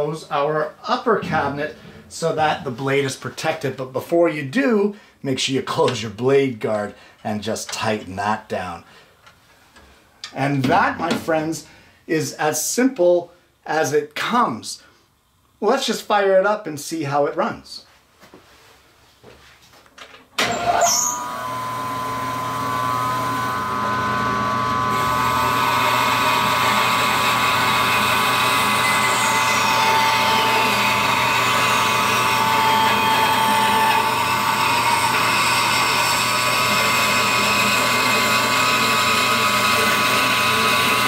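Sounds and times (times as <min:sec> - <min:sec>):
bandsaw blade cutting wood: 0:20.4 - 0:41.0
bandsaw whining: 0:20.4 - 0:41.0.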